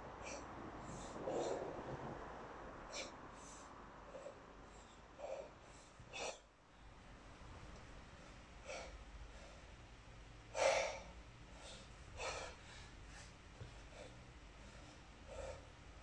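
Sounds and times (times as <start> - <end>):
man breathing forcefully: 0.1 - 1.8, 2.8 - 6.5, 8.0 - 9.8, 10.4 - 15.8.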